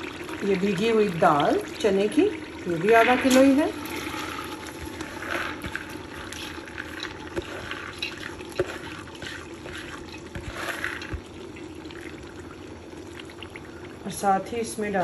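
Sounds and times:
wet lentils poured into metal pot: 2.6 - 11.3.

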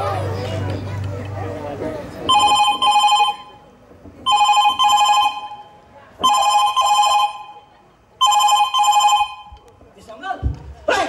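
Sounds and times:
electronic telephone ringing: 2.3 - 3.6, 4.3 - 9.5.

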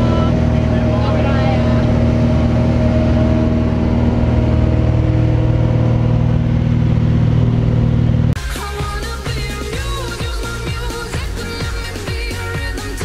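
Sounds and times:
piston engine and propeller droning: 0.0 - 13.0.

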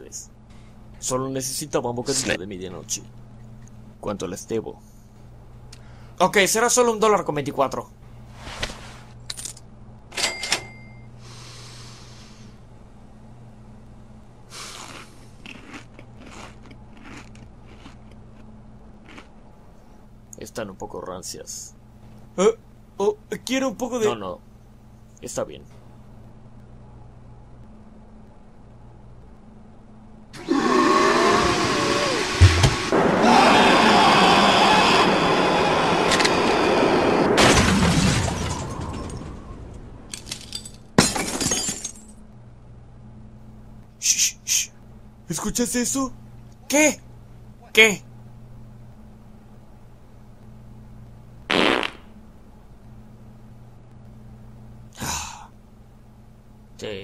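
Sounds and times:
steady low hum: 0.0 - 57.0
crunchy snack chewing: 14.5 - 19.4
glass shattering: 37.4 - 39.4, 40.1 - 42.1.

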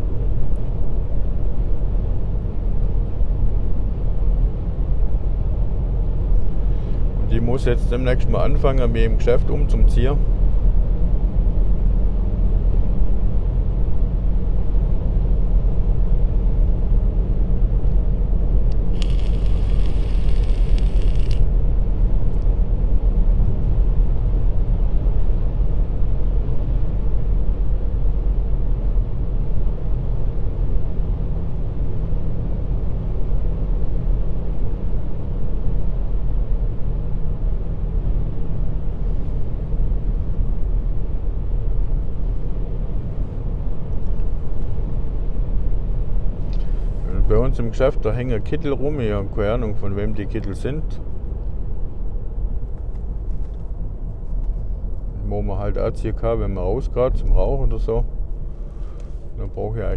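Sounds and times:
car cabin road and engine rumble: 0.0 - 34.2, 36.4 - 59.9
short hiss: 18.9 - 21.4.

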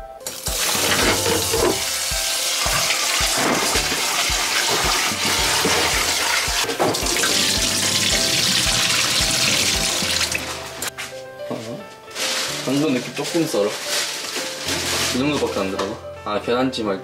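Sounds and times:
background music with beat: 0.0 - 12.8
tap water running into pot: 0.2 - 10.9
rice rinsed by hand: 0.3 - 10.9, 12.2 - 15.8.

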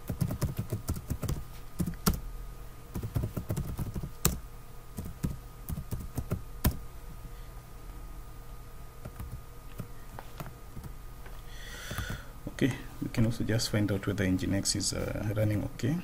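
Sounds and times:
computer keyboard typing: 0.0 - 2.2, 2.9 - 4.4, 5.0 - 6.8, 9.0 - 9.9.

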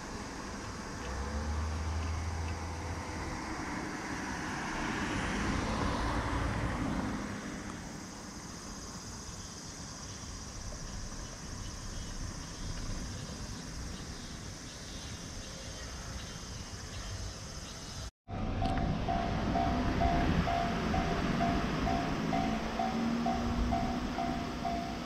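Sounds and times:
vehicle passing with rushing noise: 0.0 - 8.1, 18.3 - 25.0
street background noise: 0.0 - 25.0.

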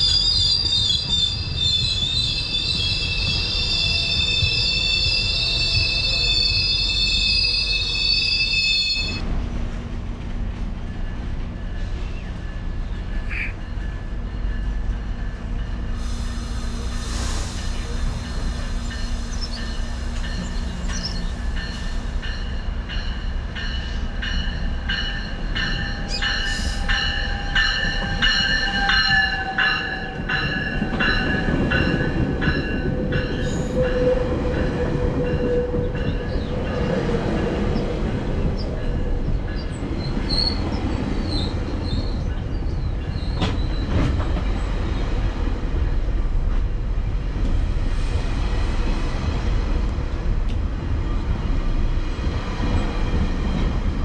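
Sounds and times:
train wheel squeal: 0.0 - 9.2, 10.9 - 44.7
train rumbling on rails: 0.0 - 54.0.

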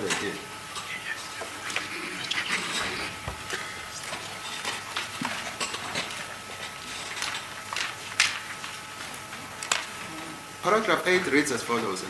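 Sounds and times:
room hum: 0.0 - 12.0
paper rustling: 1.2 - 10.0.

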